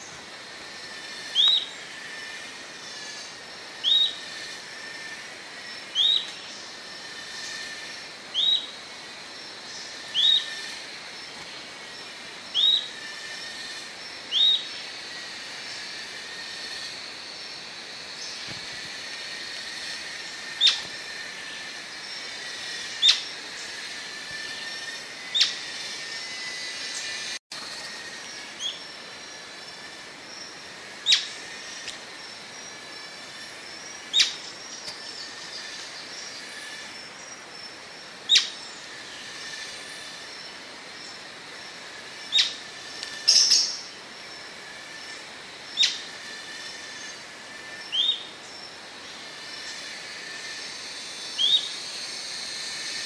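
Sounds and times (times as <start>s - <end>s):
steady background noise: 0.0s - 53.0s.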